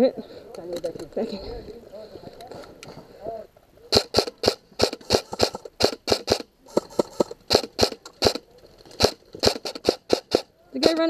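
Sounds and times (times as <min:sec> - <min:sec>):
airsoft gunfire pops: 0:03.9 - 0:08.4, 0:09.0 - 0:11.0.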